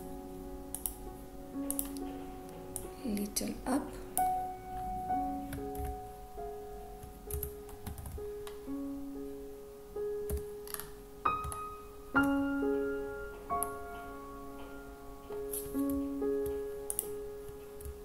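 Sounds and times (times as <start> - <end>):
slow piano music: 0.0 - 18.0
keyboard and mouse clicks: 0.7 - 1.0, 1.6 - 2.1, 10.3 - 11.6, 15.5 - 17.1.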